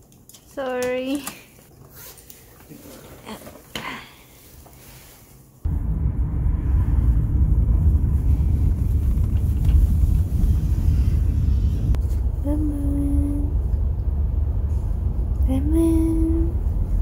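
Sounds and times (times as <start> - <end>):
car cabin rumble: 5.7 - 17.0.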